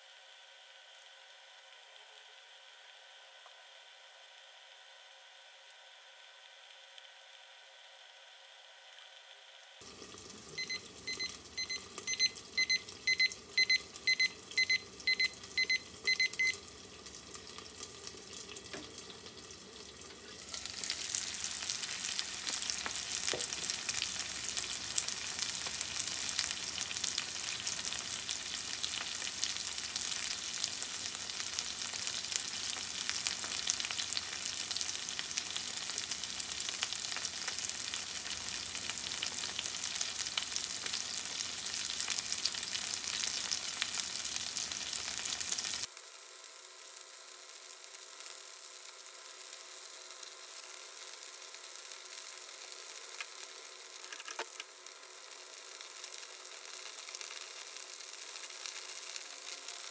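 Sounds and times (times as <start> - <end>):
dumplings sizzling in a pan: 0.0 - 59.9
timer beeping: 10.6 - 16.6.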